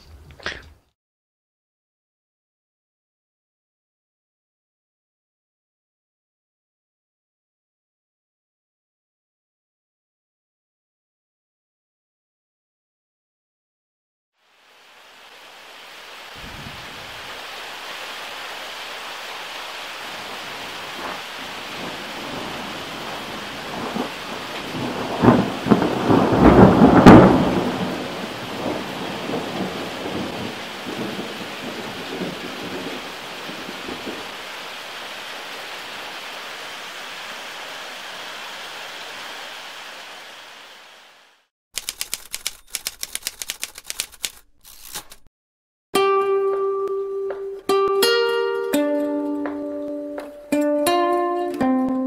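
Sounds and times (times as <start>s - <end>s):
steady rain: 14.4s - 44.0s, 47.2s - 52.0s
thunder cracking and rumbling: 16.4s - 17.3s, 20.2s - 34.4s.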